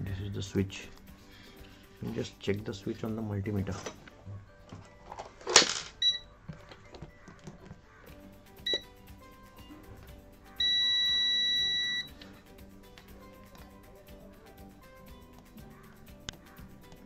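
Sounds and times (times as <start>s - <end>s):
faint music: 0.0s - 17.0s
multimeter beeping: 6.0s - 6.3s, 8.6s - 8.9s, 10.6s - 12.2s.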